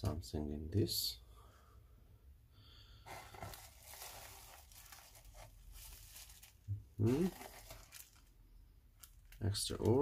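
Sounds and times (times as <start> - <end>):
bubble wrap crinkling: 3.1 - 8.4, 9.0 - 10.0.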